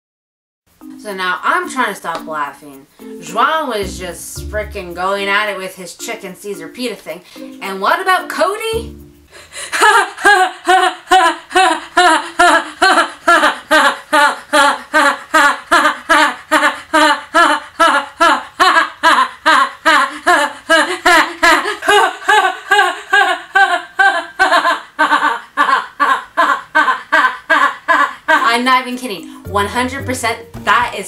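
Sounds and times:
woman laughing: 0:09.4 - 0:28.8.

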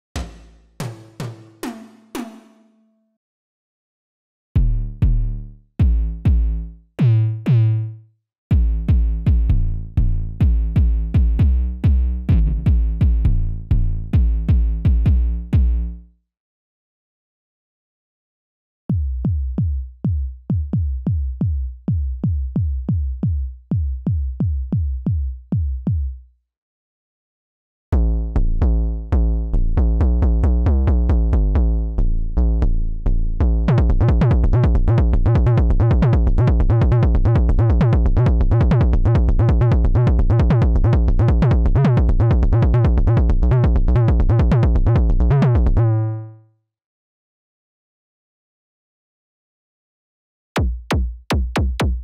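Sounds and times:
synthesized kick drum: 0:00.2 - 0:02.4, 0:04.6 - 0:07.7, 0:08.5 - 0:15.9, 0:18.9 - 0:26.2, 0:33.4 - 0:45.8, 0:50.6 - 0:52.0
sustained low bass: 0:04.6 - 0:07.9, 0:08.5 - 0:16.0, 0:28.0 - 0:46.3
electronic drum pattern: 0:33.6 - 0:45.8, 0:50.6 - 0:52.0.

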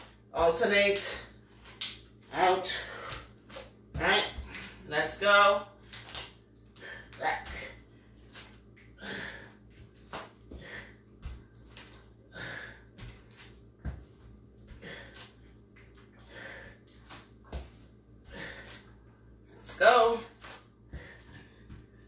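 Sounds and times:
woman breathing hard: 0:08.9 - 0:09.8, 0:10.5 - 0:11.4, 0:12.2 - 0:13.2, 0:16.1 - 0:17.0.

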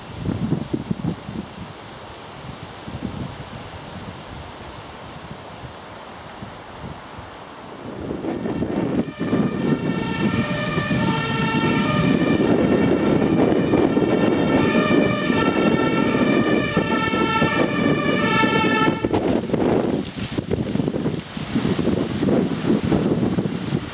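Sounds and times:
fire engine two-tone siren: 0:08.5 - 0:19.4.

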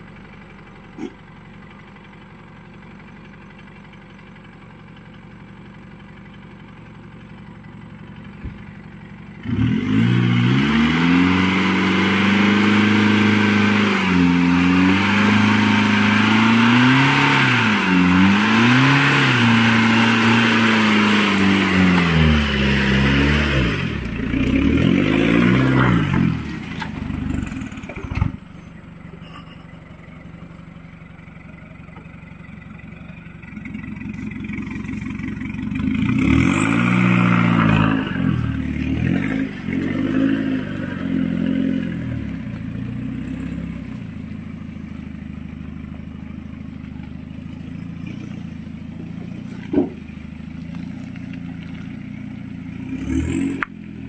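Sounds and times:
pickup truck engine revving: 0:09.4 - 0:28.4, 0:33.6 - 0:44.1.

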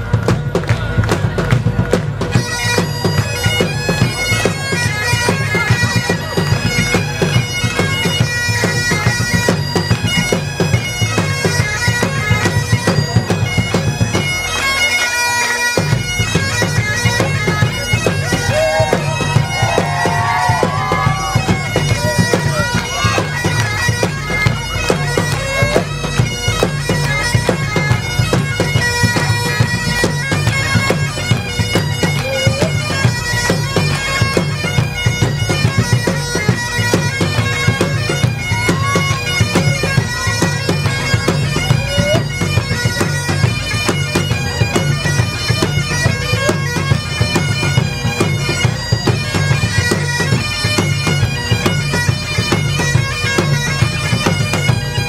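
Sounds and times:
bagpipes playing: 0:00.0 - 0:55.0
bass drums beating: 0:18.0 - 0:23.3.

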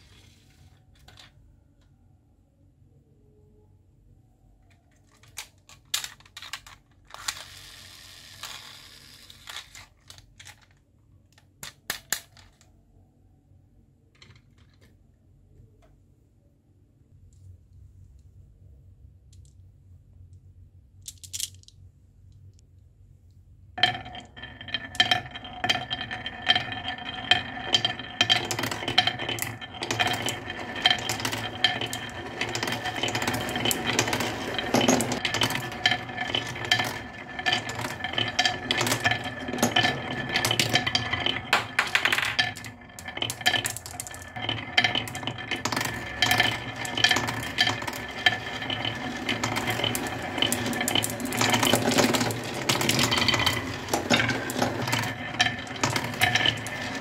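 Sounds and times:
marbles rolling on wooden track: 0:05.0 - 0:10.8, 0:14.2 - 0:14.9, 0:23.8 - 0:57.0
marbles clicking against wood: 0:23.8 - 0:57.0.

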